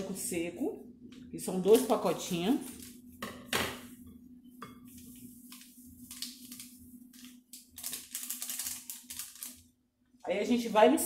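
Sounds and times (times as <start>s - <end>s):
yeast sachets crinkling: 5.5s - 9.8s.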